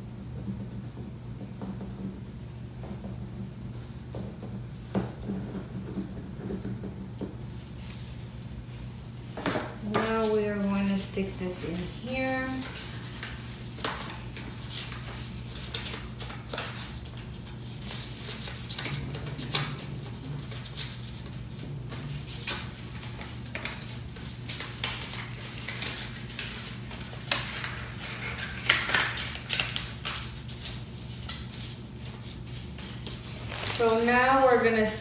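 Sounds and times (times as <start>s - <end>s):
steady low hum: 0.0s - 35.0s
hands handling paper and packaging: 9.8s - 21.3s, 22.2s - 34.6s.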